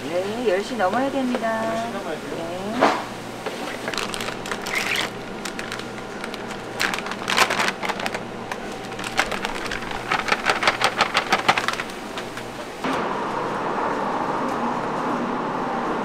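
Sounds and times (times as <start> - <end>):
paper sack crinkling: 3.5 - 12.8.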